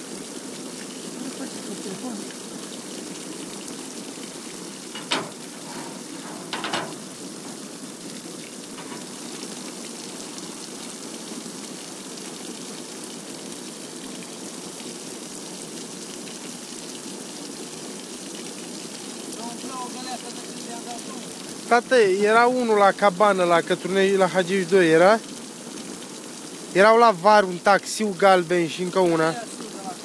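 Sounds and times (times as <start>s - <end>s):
water gushing onto metal: 0.0s - 30.0s
sharp knocks: 4.9s - 7.6s.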